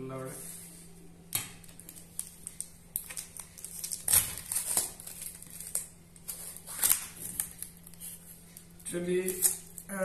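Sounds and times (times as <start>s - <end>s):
plastic crinkling and clicking: 1.3s - 9.9s
tape peeling off plastic lid: 1.6s - 7.9s.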